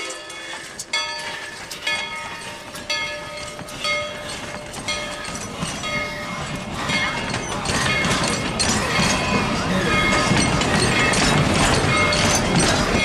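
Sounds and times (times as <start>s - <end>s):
train wheels clicking over rail joints: 0.0s - 13.0s
high metallic wheel squeal: 3.3s - 13.0s.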